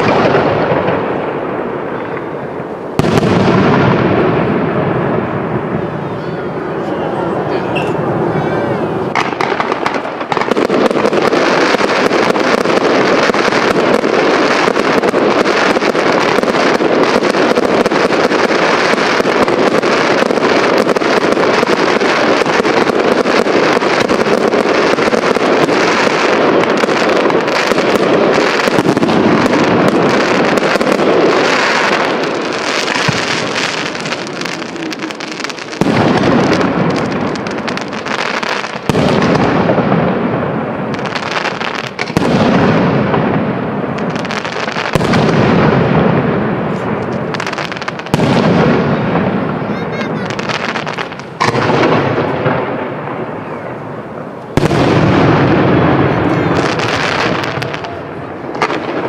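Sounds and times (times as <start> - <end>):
fireworks crackling: 0.0 - 59.0
firework shells bursting: 50.2 - 53.1.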